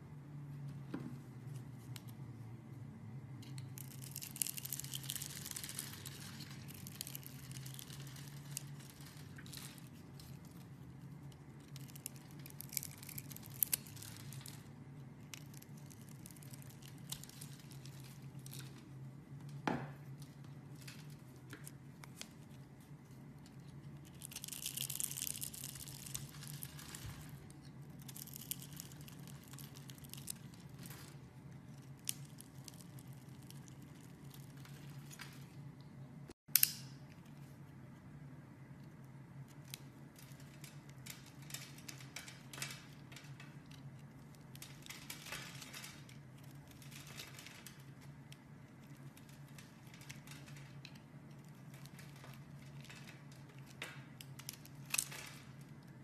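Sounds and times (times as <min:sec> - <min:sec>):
soap cubes crumbling: 0:03.8 - 0:10.5, 0:24.0 - 0:31.1.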